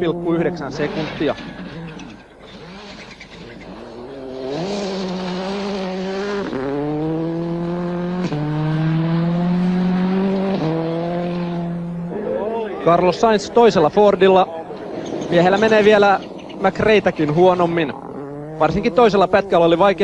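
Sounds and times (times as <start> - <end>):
rally car engine at high revs: 0.0 - 12.2, 14.8 - 20.0.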